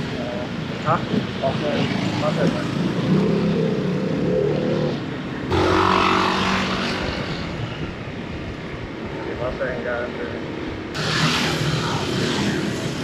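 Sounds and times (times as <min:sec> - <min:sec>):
road and wind noise: 0:00.0 - 0:13.0.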